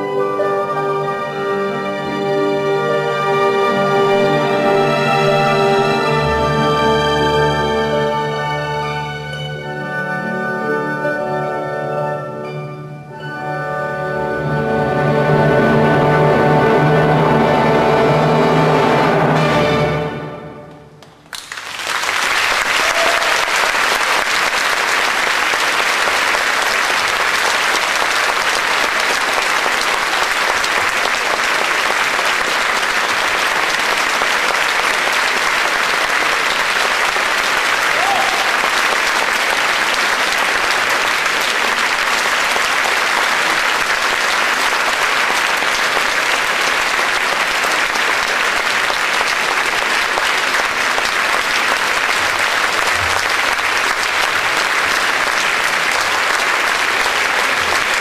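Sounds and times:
audience applauding: 21.0 - 58.0.

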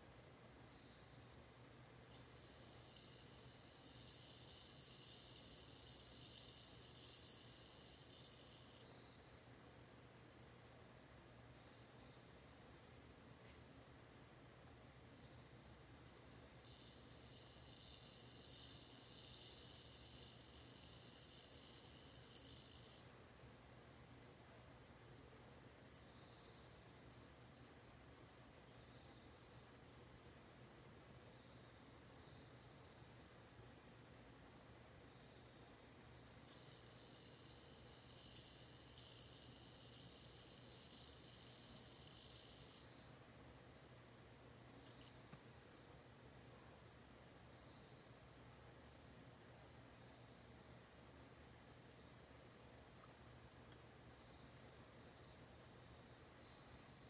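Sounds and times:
cricket trilling: 2.1 - 9.0, 16.1 - 23.2, 36.5 - 43.2, 56.4 - 57.0.

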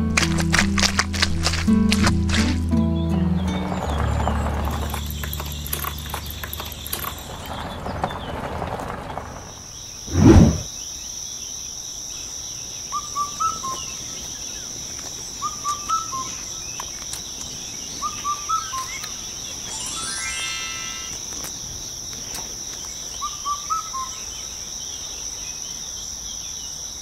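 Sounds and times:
bird chirping: 2.8 - 8.4, 9.8 - 25.8
high insect drone: 10.7 - 27.0.

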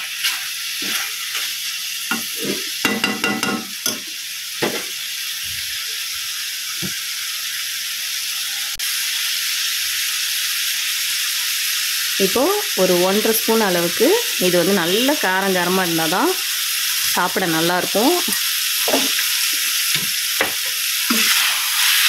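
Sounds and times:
food sizzling in a pan: 0.0 - 22.0
spoon scraping and knocking pan: 0.2 - 1.5, 2.1 - 4.9, 18.8 - 21.6.

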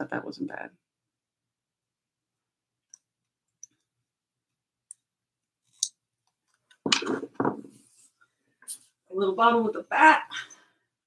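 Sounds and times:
objects knocking on table: 6.8 - 7.8.

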